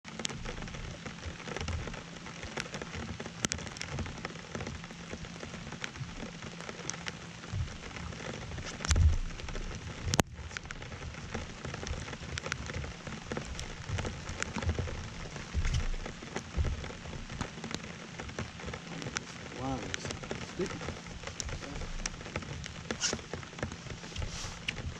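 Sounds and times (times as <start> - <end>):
raindrops ticking on camera: 0.0 - 24.9
steady rain: 0.0 - 24.9
low thumps: 12.7 - 19.1.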